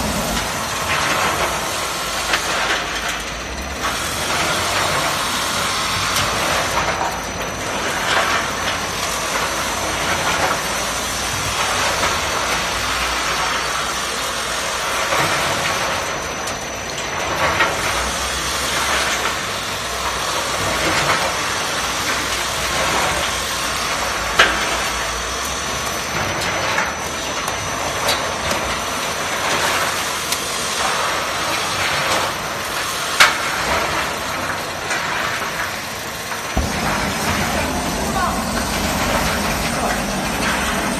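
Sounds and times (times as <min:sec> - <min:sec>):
machine running: 0:00.0 - 0:13.5, 0:36.4 - 0:40.9.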